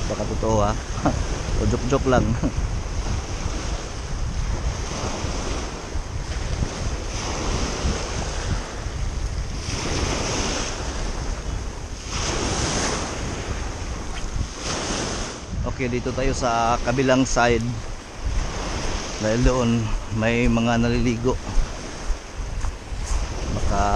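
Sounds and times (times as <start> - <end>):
waves washing up pebble beach: 0.0 - 15.5
wind buffeting microphone: 0.0 - 23.9.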